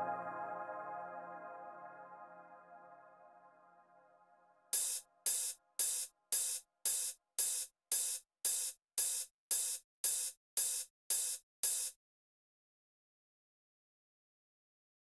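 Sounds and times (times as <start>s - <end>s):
open hi-hat hits: 4.8s - 12.0s.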